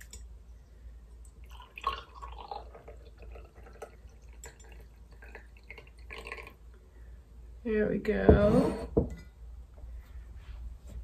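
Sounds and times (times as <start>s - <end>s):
liquid trickling and dripping: 1.1s - 6.8s.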